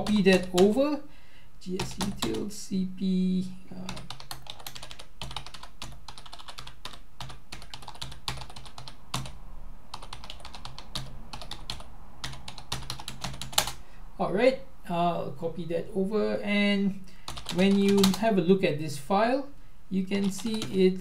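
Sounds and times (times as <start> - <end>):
computer keyboard typing: 0.0 - 0.8, 1.8 - 2.4, 3.8 - 13.8, 17.3 - 18.2, 20.1 - 20.8
low steady hum: 0.0 - 21.0.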